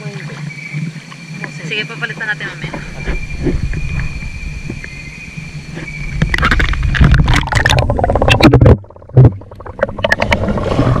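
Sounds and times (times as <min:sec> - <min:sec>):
water splashing and sloshing: 0:00.0 - 0:11.0
muffled underwater thumps: 0:02.6 - 0:11.0
underwater bubbling: 0:02.6 - 0:11.0.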